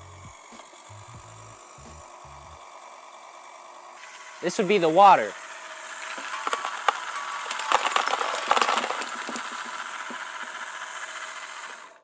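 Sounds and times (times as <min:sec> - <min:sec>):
plastic pieces clicking and rattling: 0:06.0 - 0:10.5.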